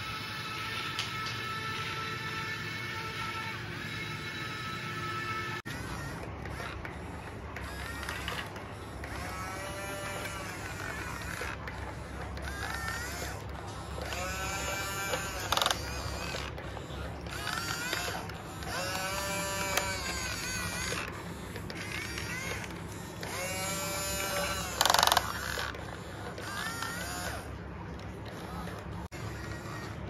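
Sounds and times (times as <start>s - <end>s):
small electric motors whining: 0.0s - 30.0s.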